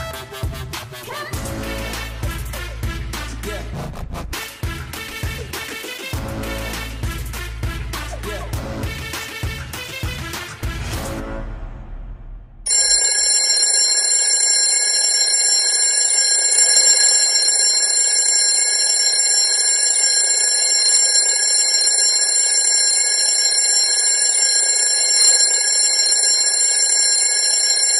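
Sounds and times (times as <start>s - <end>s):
alarm clock ringing: 12.7s - 27.9s.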